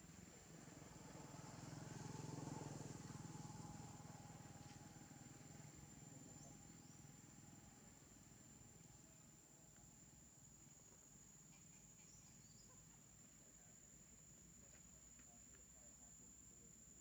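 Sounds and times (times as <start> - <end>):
distant motor vehicle drone: 0.1 - 8.8.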